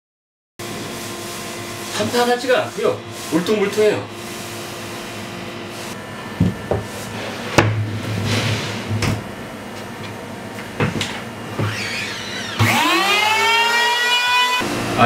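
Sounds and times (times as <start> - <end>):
steady rising whine: 0.6 - 6.4, 11.7 - 15.0
cutting board knocking on workbench: 6.4 - 6.9, 7.6 - 7.8
board scraping: 6.8 - 9.0.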